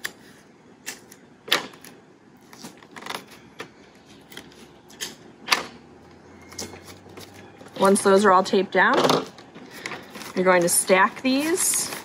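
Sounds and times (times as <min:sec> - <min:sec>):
paper bags crinkling: 0:09.6 - 0:12.0.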